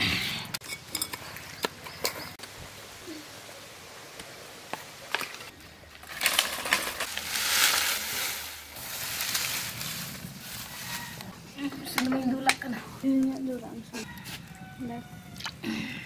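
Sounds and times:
dry leaves rustling and crackling: 5.1 - 13.2.

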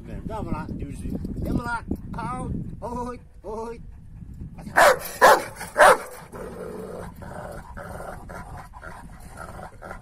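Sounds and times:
dog panting rapidly: 3.8 - 6.3
large dog barking: 4.7 - 6.9.

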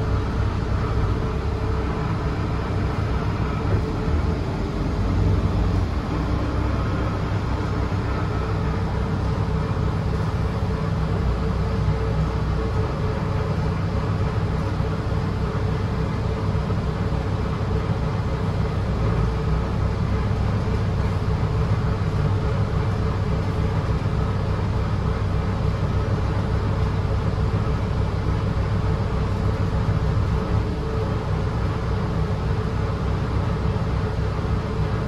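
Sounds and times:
bus engine and road rumble: 0.0 - 35.0.

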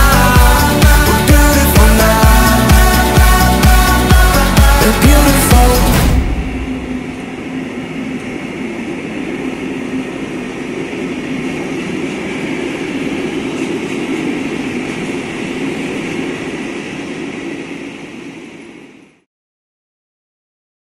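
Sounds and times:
steel wheels hissing on rails: 0.0 - 19.2
freight train rolling past: 0.0 - 19.3.

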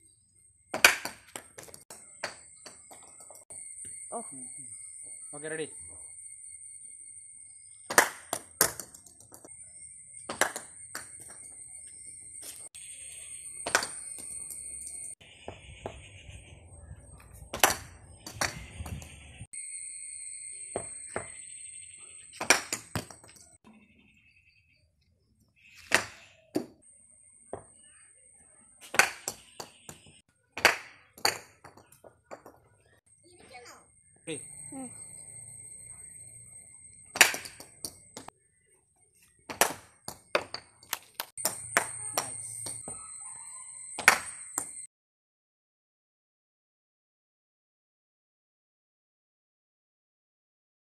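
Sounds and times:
cricket bat hitting ball: 0.8 - 1.7, 22.4 - 23.3, 25.8 - 26.8, 28.8 - 31.8.

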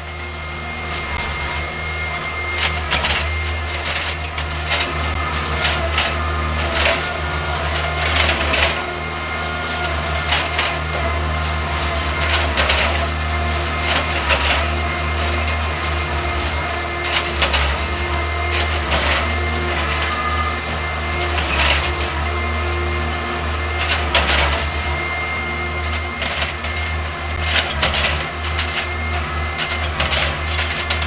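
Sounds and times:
machine engine running: 0.0 - 31.0
metallic clanks and clicks: 9.7 - 20.5, 25.6 - 31.0.

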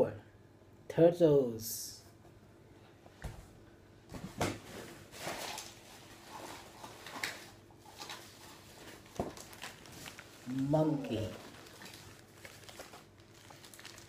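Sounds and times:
packaging rustling: 4.2 - 14.0.

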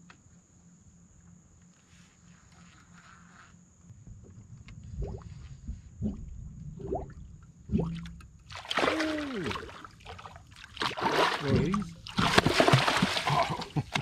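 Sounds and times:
fish splashing at water surface: 7.7 - 14.0.

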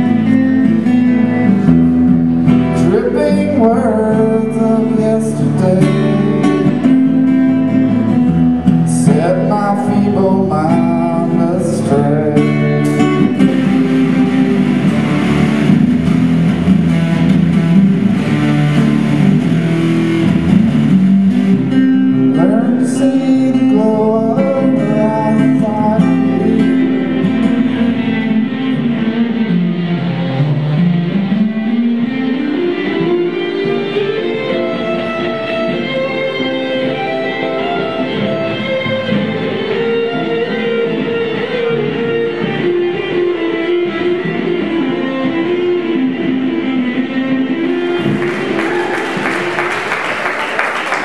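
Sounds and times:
electric guitar playing: 0.0 - 51.0
person singing: 2.6 - 7.2, 8.8 - 14.5, 22.1 - 27.4.

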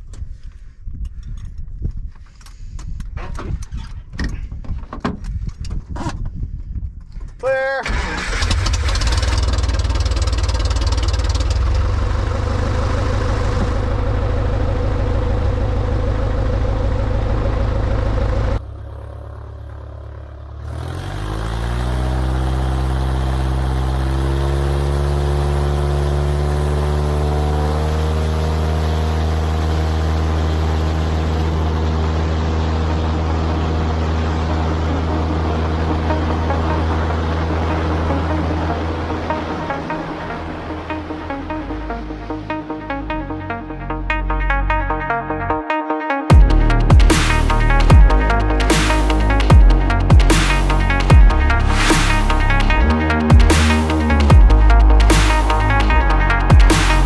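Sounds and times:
plane engine and propeller: 7.8 - 44.4.

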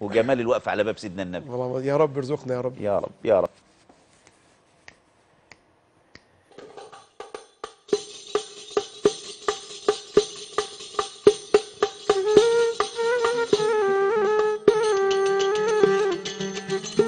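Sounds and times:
frame tambourine jingling beat: 6.6 - 13.8, 14.4 - 17.0.

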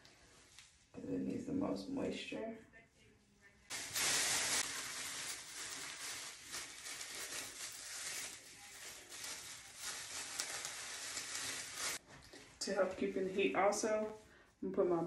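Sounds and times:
plastic bag crinkling: 3.7 - 12.0.

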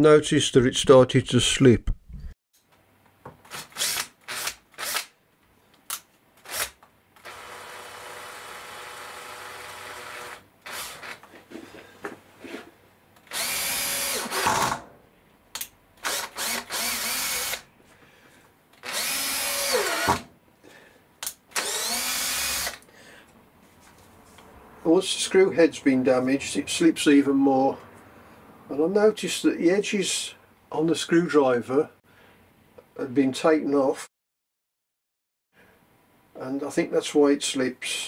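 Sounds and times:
electric drill driving screws into wood: 3.4 - 5.2, 6.4 - 11.3, 13.2 - 14.9, 16.0 - 17.7, 18.8 - 20.3, 21.2 - 22.9.

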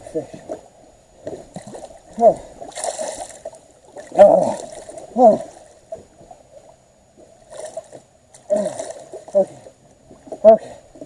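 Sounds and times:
man groaning with effort: 4.2 - 5.5.

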